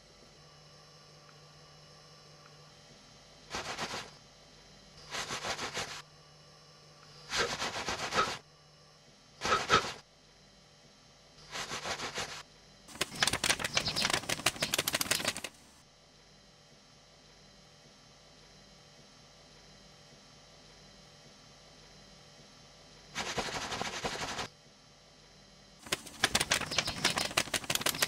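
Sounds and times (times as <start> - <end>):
rapid clicking rattle: 12.9 - 15.8, 25.8 - 28.0.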